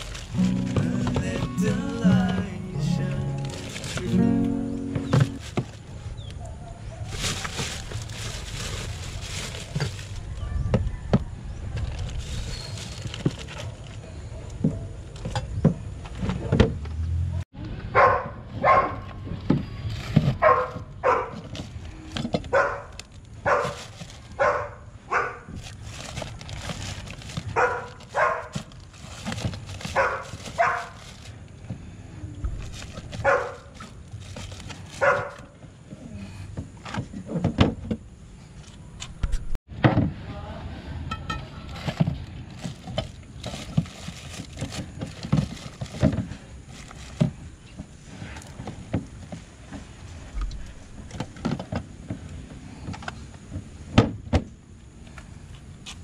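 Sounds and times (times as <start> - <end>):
dog barking: 6.4 - 7.2, 17.9 - 19.1, 20.4 - 21.4, 22.5 - 23.8, 24.4 - 25.5, 27.5 - 28.6, 29.9 - 31.0, 33.2 - 33.7, 35.0 - 35.5.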